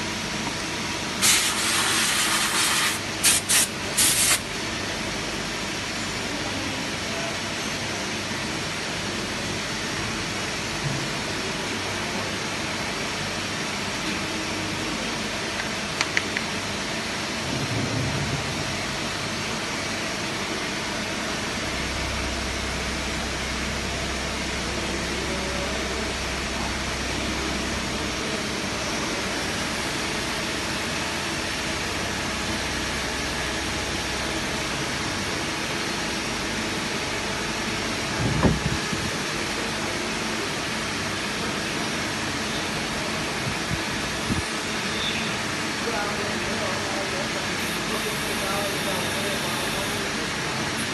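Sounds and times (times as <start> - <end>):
machine shop machinery din: 9.0 - 50.9
low hum: 17.4 - 39.1.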